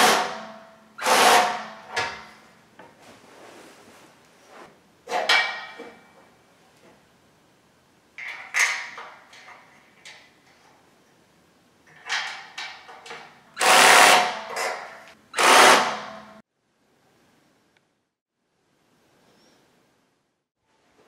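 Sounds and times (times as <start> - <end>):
power drill bursts: 1.0 - 1.6, 13.6 - 14.4, 15.4 - 16.1.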